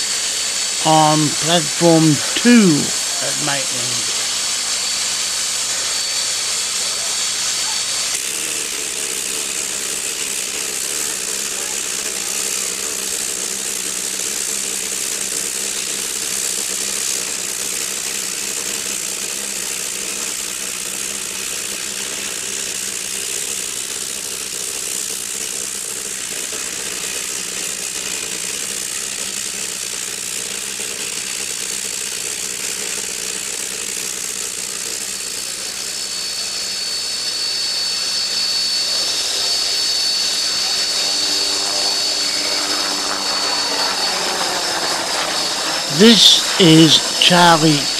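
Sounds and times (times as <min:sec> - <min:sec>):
thin high tone: 0:45.8 - 0:47.9.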